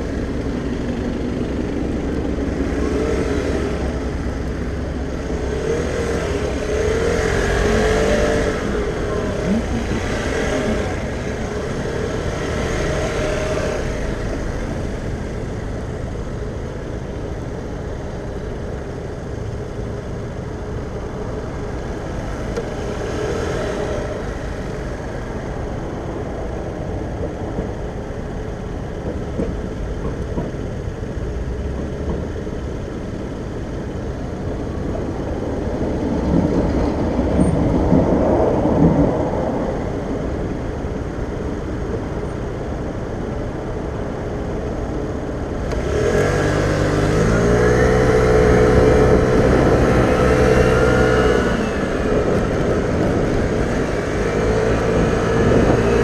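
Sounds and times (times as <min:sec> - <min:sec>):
city traffic noise: 0:00.0 - 0:56.0
tram approaching: 0:00.0 - 0:56.0.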